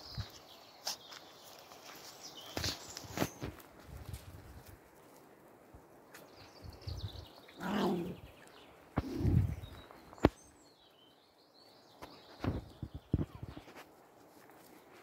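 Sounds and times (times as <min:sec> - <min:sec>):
birds chirping faintly: 0:00.0 - 0:03.8, 0:04.9 - 0:15.0
low dog grumbles: 0:07.6 - 0:08.3.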